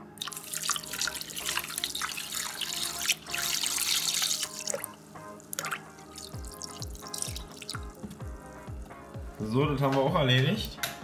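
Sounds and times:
milk pouring into metal bowl: 0.0s - 9.4s.

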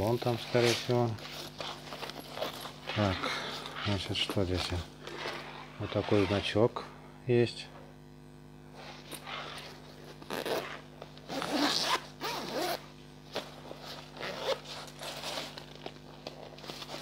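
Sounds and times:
backpack zipper being pulled: 9.2s - 12.8s, 14.1s - 15.5s.

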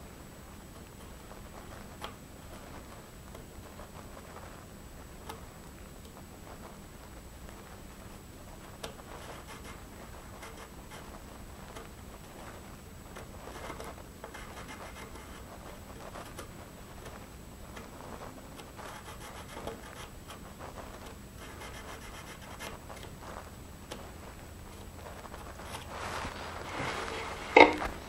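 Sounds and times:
marking tool scratching wood: 9.0s - 12.6s, 13.2s - 16.5s, 17.8s - 23.1s.

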